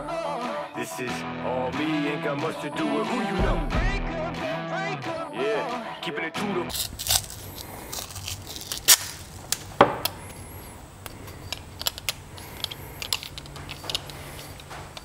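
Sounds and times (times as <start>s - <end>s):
tape handling clicks and rustles: 6.7s - 15.0s.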